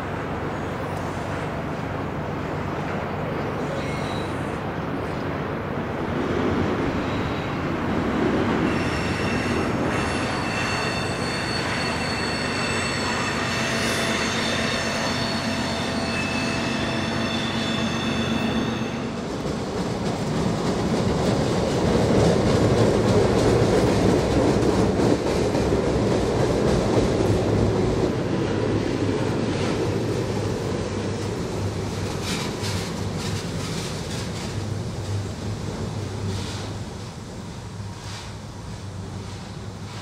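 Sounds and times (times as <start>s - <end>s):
train cars rolling and clattering: 0.0s - 40.0s
steel wheels squealing: 3.6s - 4.6s, 8.6s - 19.2s.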